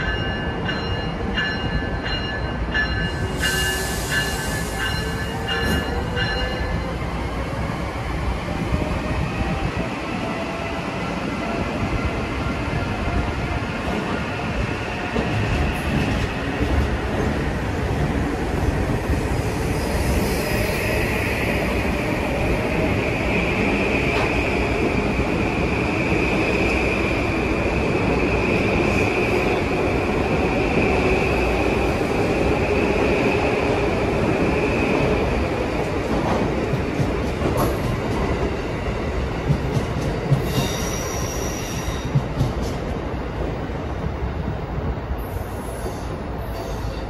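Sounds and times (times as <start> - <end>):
train high whine: 0.0 - 35.6, 40.3 - 42.2.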